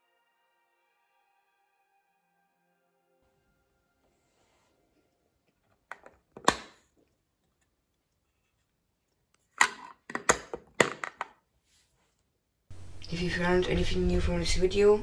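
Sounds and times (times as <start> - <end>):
plastic lid clicks and knocks: 5.9 - 6.8, 9.6 - 11.4.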